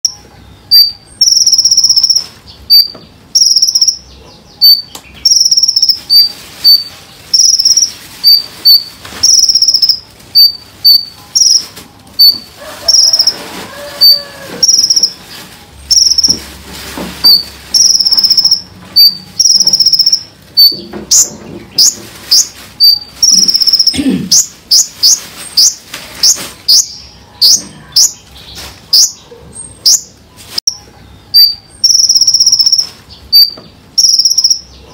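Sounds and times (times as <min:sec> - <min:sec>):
bird singing shrill notes: 0:00.0 - 0:16.4, 0:17.2 - 0:34.8.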